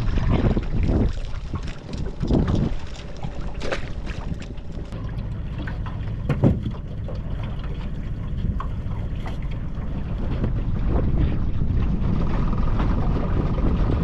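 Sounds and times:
steady low rumble: 0.0 - 14.0
loud clunk: 6.3 - 6.8.

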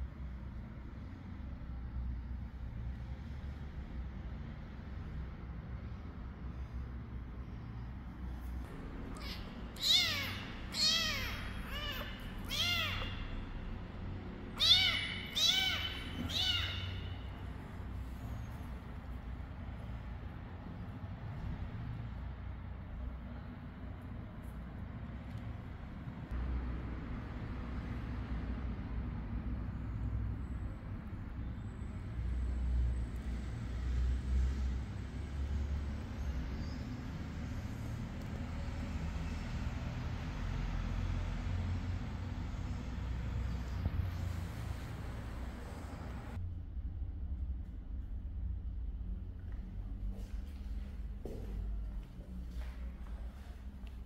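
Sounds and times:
kitten meowing: 9.0 - 13.6, 14.5 - 17.5.

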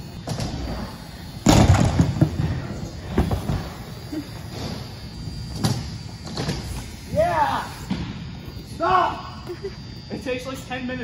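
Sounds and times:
bike crashing onto ramp: 1.4 - 3.8.

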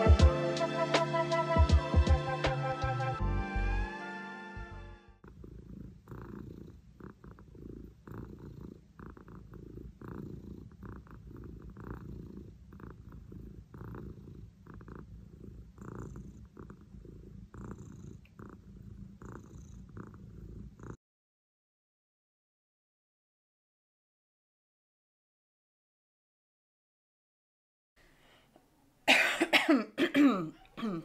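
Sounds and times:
music track: 0.0 - 5.2
cat purring: 5.2 - 21.0.

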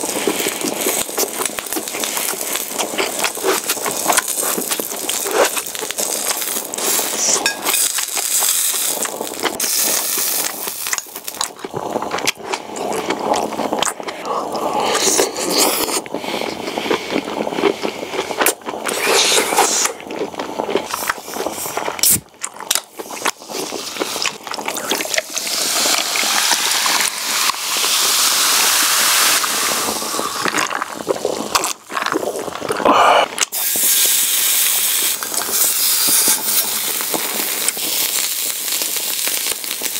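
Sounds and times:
close chewing mouth sounds: 0.0 - 27.1, 29.4 - 33.6.

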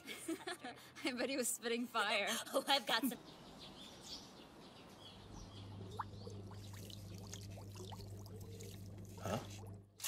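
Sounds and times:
steady low hum: 5.2 - 10.0
aquarium water bubbling: 5.6 - 10.0.

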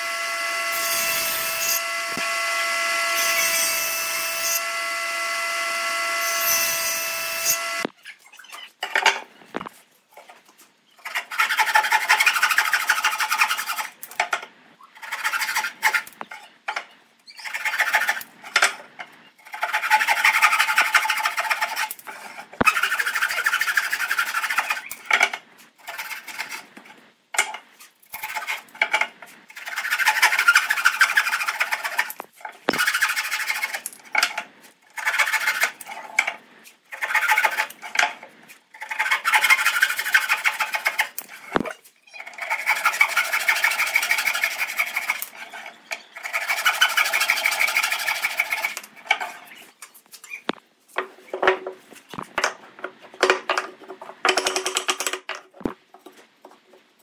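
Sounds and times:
power tool whine: 0.0 - 7.9
rasping strokes on wood: 42.4 - 49.6.

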